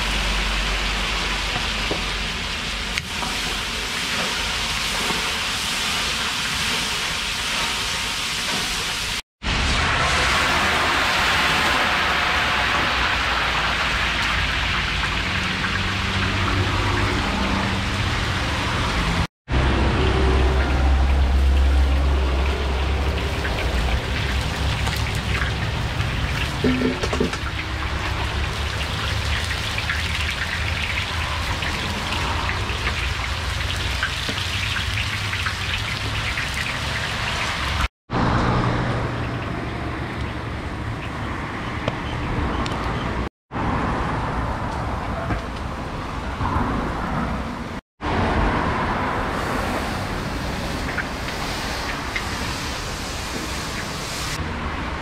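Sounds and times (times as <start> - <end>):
hot oil sizzling and crackling: 0.0 - 37.9, 49.2 - 54.4.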